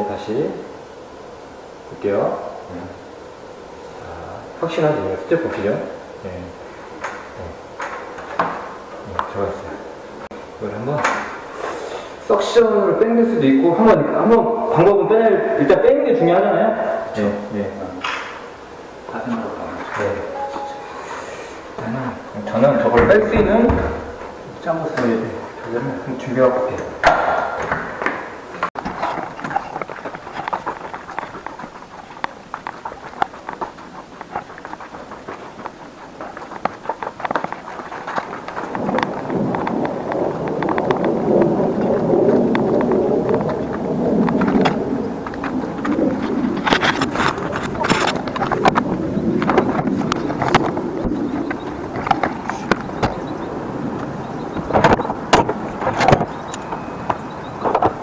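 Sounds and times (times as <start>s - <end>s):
footsteps going down stairs: 27.0s - 39.9s
knocks and clatters: 27.0s - 41.2s
vehicle noise: 27.6s - 58.0s.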